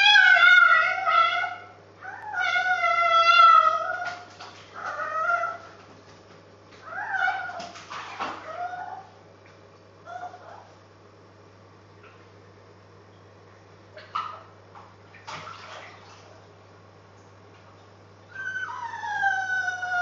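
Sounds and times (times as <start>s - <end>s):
dog howling: 0.0s - 5.8s, 6.8s - 7.6s, 8.4s - 9.1s, 18.3s - 20.0s.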